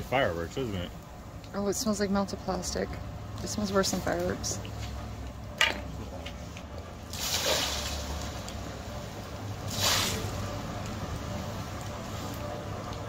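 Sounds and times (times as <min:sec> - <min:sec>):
water splashing from bucket: 0:07.0 - 0:08.5, 0:09.6 - 0:10.4.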